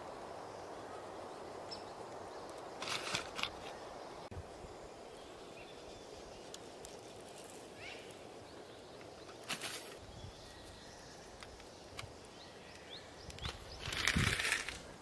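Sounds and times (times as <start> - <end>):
hissing rustle: 0.0 - 15.0
faint bird chirps: 3.6 - 14.2.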